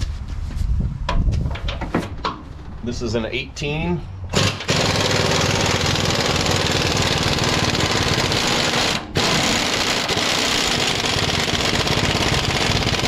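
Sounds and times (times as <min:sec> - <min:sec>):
impact wrench hammering: 0:04.4 - 0:13.0.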